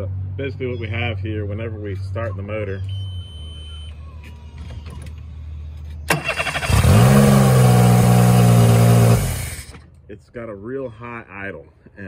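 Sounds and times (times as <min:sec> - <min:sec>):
outboard motor fast idle: 0:06.1 - 0:07.2
outboard motor starting: 0:06.1 - 0:09.9.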